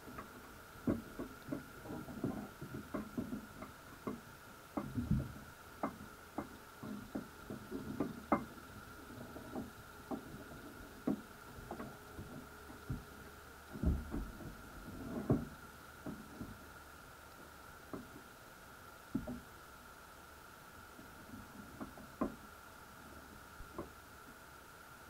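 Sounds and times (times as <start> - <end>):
underwater clicks and knocks: 0.0 - 16.6, 17.9 - 18.3, 19.1 - 19.5, 21.8 - 22.4, 23.6 - 24.0.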